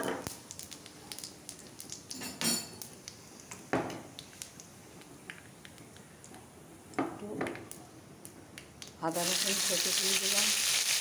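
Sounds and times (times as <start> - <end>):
spices frying in hot oil: 0.0 - 6.0, 8.2 - 11.0.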